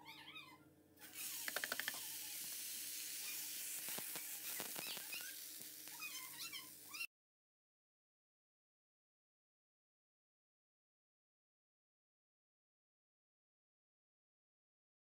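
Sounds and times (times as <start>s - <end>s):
rice sizzling in hot fat: 1.0s - 7.1s
grains pattering: 1.3s - 6.1s.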